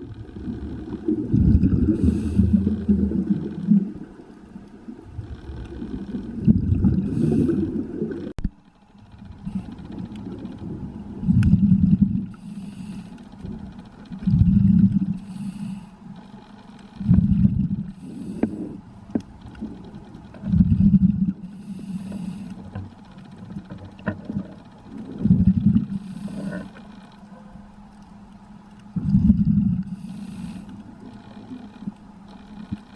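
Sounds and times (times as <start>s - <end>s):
exhaled bubbles underwater: 0.0s - 8.3s, 9.4s - 12.4s, 14.2s - 15.2s, 17.0s - 18.8s, 19.6s - 21.7s, 23.6s - 26.7s, 29.0s - 30.4s
regulator inhale hiss: 1.9s - 2.9s, 7.0s - 7.8s, 11.3s - 13.3s, 15.1s - 16.2s, 17.9s - 18.9s, 21.4s - 22.8s, 25.8s - 26.8s, 29.8s - 31.0s.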